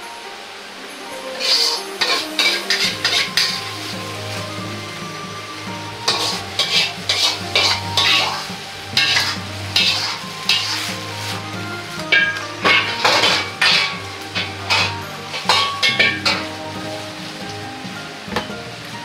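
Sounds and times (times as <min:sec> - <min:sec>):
metal ladle scraping in a wok: 0:01.4 - 0:04.6, 0:05.6 - 0:17.4.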